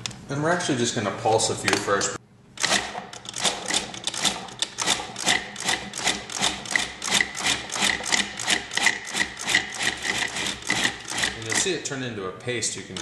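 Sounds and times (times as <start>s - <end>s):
food processor pulsing: 2.7s - 11.6s.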